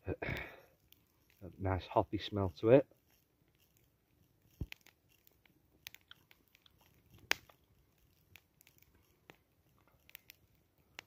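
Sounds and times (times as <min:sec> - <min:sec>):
wet mouth clicks: 0:05.9 - 0:07.6.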